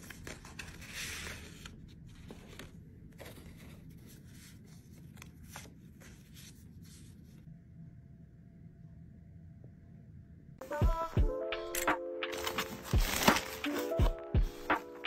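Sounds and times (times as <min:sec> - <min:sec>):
paper packaging rustling: 0:00.0 - 0:07.4, 0:12.3 - 0:15.0.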